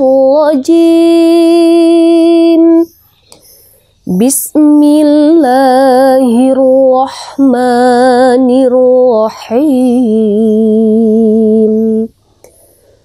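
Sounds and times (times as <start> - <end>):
person chanting recitation: 0.0 - 3.4, 4.0 - 12.5
breath: 3.3 - 4.0, 12.4 - 13.0.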